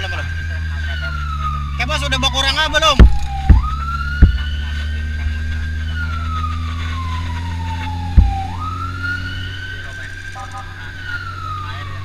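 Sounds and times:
car engine hum: 0:00.0 - 0:12.0
emergency siren wailing: 0:00.0 - 0:12.0
sharp knocks: 0:03.0 - 0:04.5, 0:08.2 - 0:08.5.

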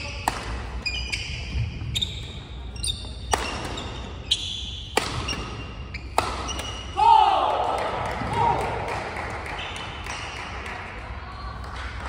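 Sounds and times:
rackets striking shuttlecock: 0:00.2 - 0:01.3, 0:02.8 - 0:07.0
shoes squeaking on floor: 0:00.8 - 0:06.9.

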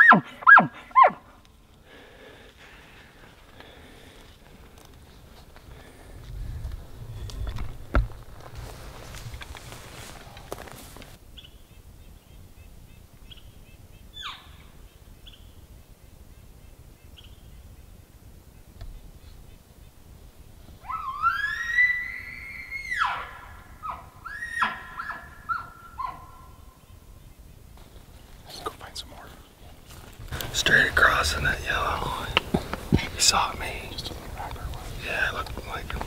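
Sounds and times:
elk bugling: 0:00.0 - 0:02.0, 0:20.8 - 0:26.7.

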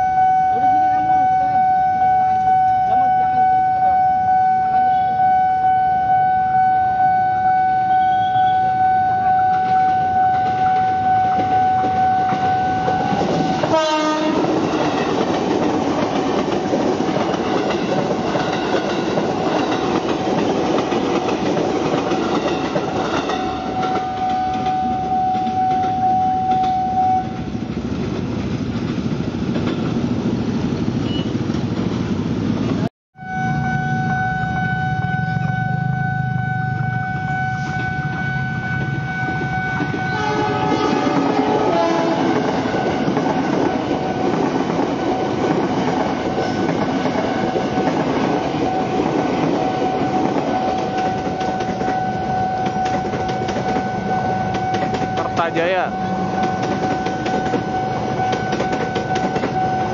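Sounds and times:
level crossing bell pulsing: 0:00.0 - 0:13.7, 0:17.4 - 0:27.5, 0:33.2 - 0:43.0, 0:46.1 - 0:59.9
train rumbling: 0:00.0 - 0:59.9
wheels clattering over rail joints: 0:27.4 - 0:30.4.

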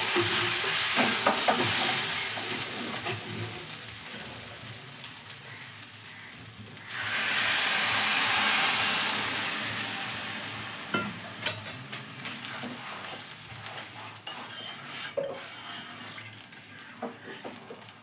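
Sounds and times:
water sizzling in hot oil: 0:00.0 - 0:18.0
metal spatula scraping pan: 0:12.3 - 0:17.7.

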